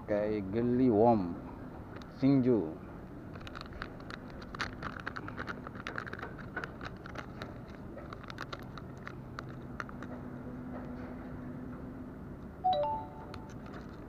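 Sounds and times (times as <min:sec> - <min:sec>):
plastic packet crinkling: 0:03.3 - 0:10.1.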